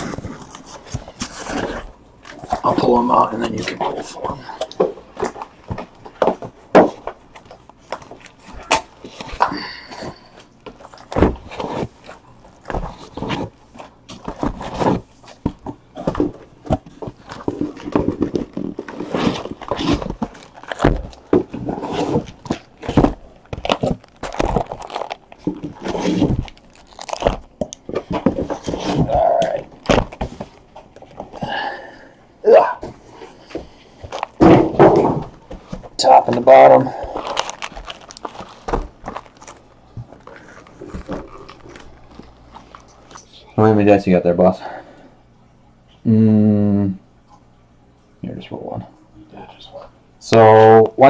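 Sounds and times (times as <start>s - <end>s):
cardboard knocks and scrapes: 10.7s - 12.0s, 32.8s - 36.0s.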